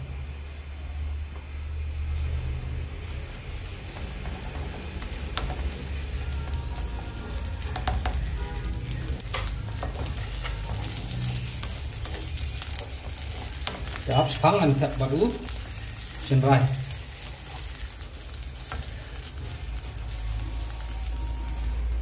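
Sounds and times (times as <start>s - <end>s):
gravy sizzling and bubbling: 1.5s - 22.0s
spatula knocking on pan: 7.7s - 8.3s.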